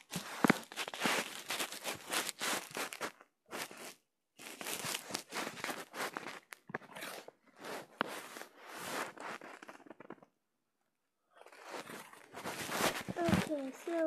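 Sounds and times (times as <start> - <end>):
fingers rubbing over microphone: 4.8 - 10.2, 11.5 - 14.0.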